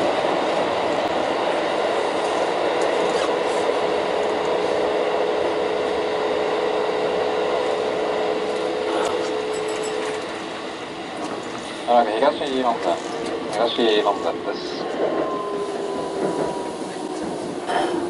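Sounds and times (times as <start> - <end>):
train wheels rumbling: 0.0 - 18.0.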